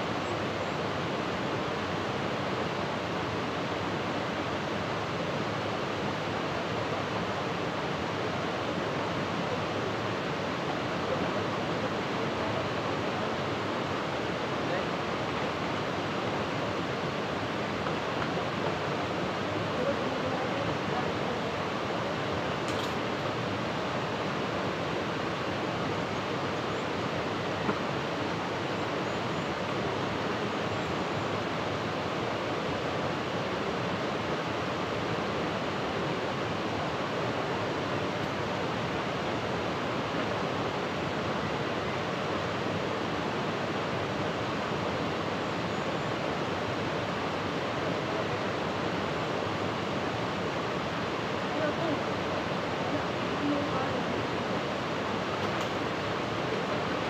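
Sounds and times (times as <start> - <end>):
water rushing: 0.0 - 57.0
brief click: 22.7 - 23.0.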